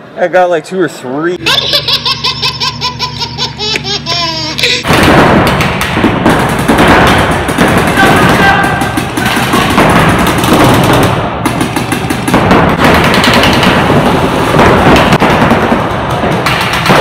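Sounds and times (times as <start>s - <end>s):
paintball markers firing: 4.8s - 17.0s.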